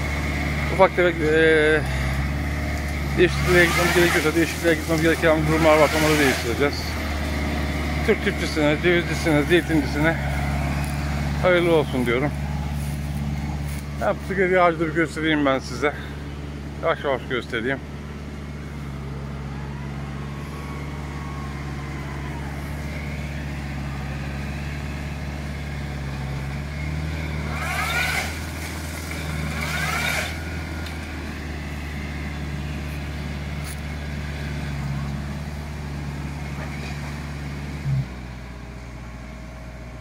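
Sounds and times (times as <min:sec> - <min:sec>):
tractor engine running: 0:00.0 - 0:40.0
tree shaker bursts with whine: 0:27.2 - 0:33.2.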